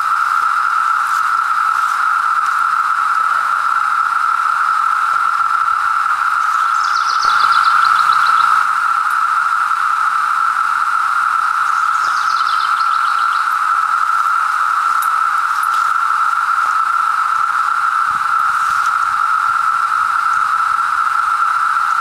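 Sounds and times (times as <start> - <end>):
cicadas droning: 0.0 - 22.0
bird singing high notes: 6.4 - 8.7, 11.6 - 13.6.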